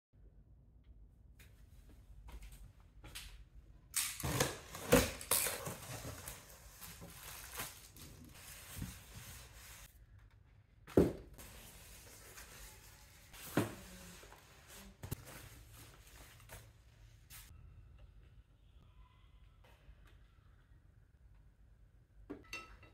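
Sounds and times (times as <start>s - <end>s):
cardboard and tape tearing: 4.0s - 8.6s
plastic wrapping rustling: 4.2s - 9.9s.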